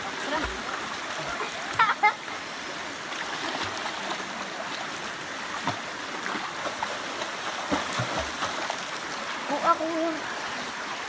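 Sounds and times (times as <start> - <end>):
rushing river water: 0.0 - 11.0
person swimming splashing: 7.6 - 8.7.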